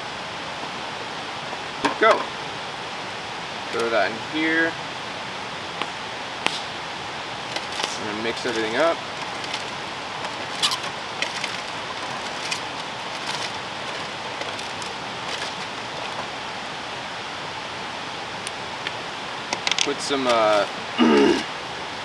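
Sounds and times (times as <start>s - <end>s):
steady rushing background noise: 0.0s - 22.0s
aluminium foil crinkling: 7.4s - 16.3s.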